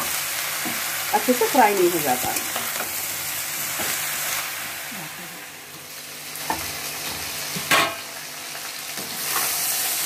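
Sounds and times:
vegetables sizzling in hot oil: 0.0s - 10.0s
spatula scraping a pan: 9.1s - 9.7s.

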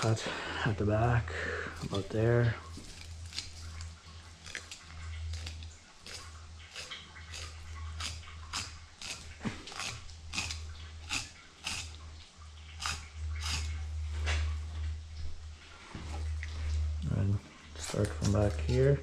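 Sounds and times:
steady low hum: 0.0s - 19.0s
knife scraping through fish flesh: 1.8s - 12.0s, 12.8s - 13.8s, 17.8s - 19.0s.

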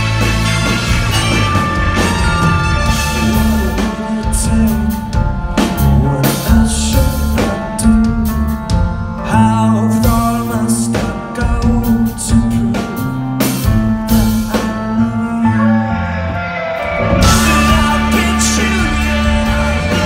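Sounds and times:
live rock band playing: 0.0s - 20.0s
person singing: 2.8s - 8.6s, 13.8s - 20.0s.

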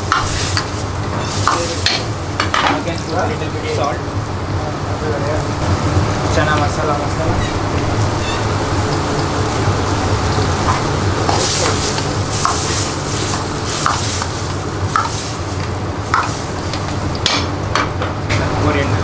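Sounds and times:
ladle stirring and scraping pan: 0.0s - 2.1s, 8.1s - 17.3s.

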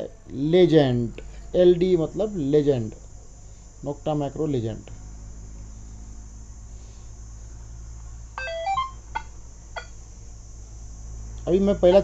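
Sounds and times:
steady low hum: 0.0s - 12.0s
rising start-up beeps: 8.4s - 9.0s.

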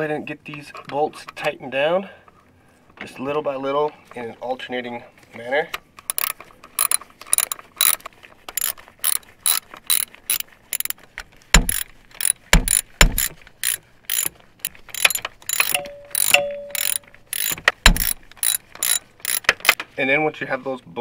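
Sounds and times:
hand ratchet clicking: 6.1s - 11.0s, 11.6s - 19.8s
dull knocks: 17.8s - 18.1s.

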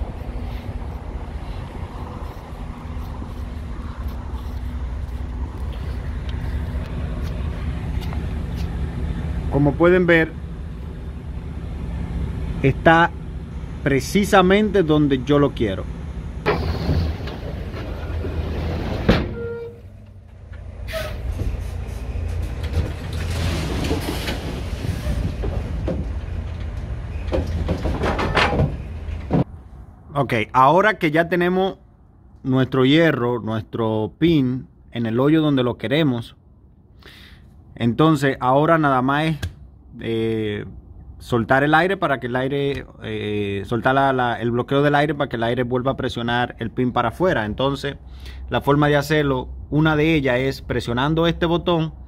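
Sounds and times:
footsteps on pavement: 0.0s - 8.8s
diesel truck engine idling: 0.0s - 18.4s.

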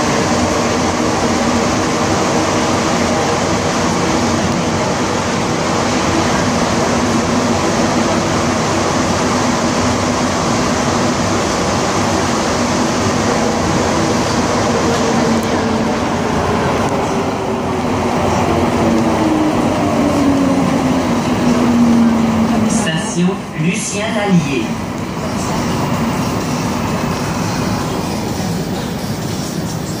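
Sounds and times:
train drive whine: 0.0s - 30.0s
train running through tunnel: 0.0s - 30.0s.

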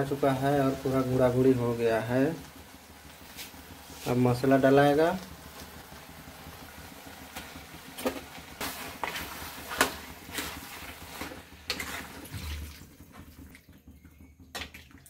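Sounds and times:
faint steady hiss: 0.0s - 9.4s
metal ladle scraping a pan: 8.0s - 12.2s.

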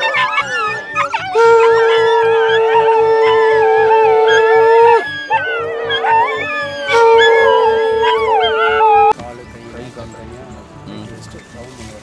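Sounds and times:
dogs howling: 0.0s - 9.2s.

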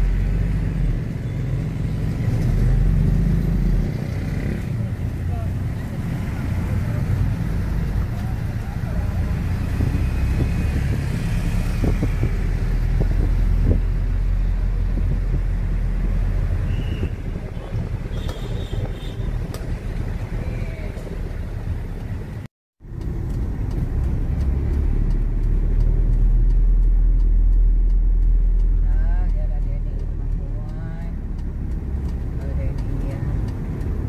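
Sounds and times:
road noise: 0.0s - 34.0s
vehicle engine rumble: 0.0s - 34.0s.

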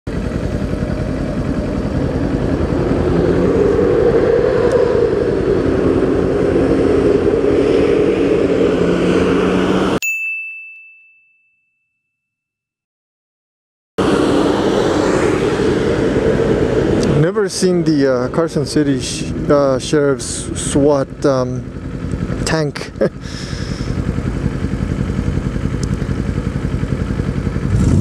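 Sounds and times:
motorcycle engine running: 0.1s - 10.0s, 14.0s - 28.0s
bright ding: 10.0s - 12.3s.

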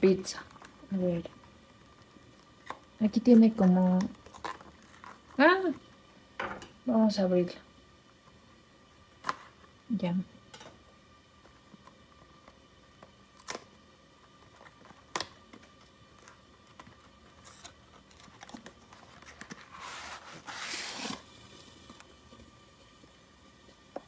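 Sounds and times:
cardboard scraping and tearing: 17.4s - 21.3s.

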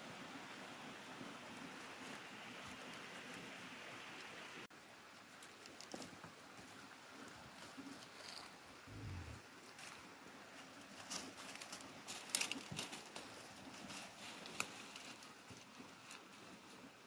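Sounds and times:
horses chewing dry brush: 5.0s - 17.0s.

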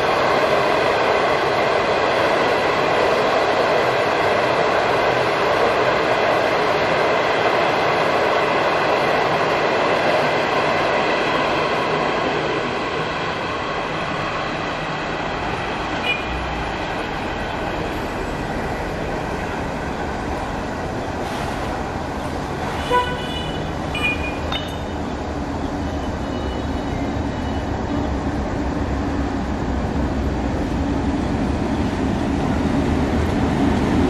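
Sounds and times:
train horn toots: 22.7s - 24.4s.

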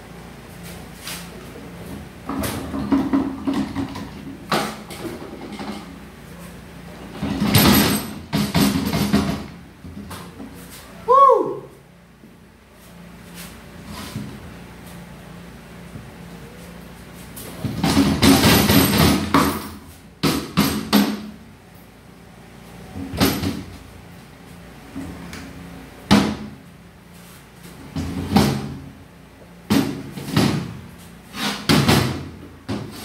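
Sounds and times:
metal parts clanking and rattling: 2.3s - 5.9s, 7.1s - 9.5s, 17.6s - 19.8s.

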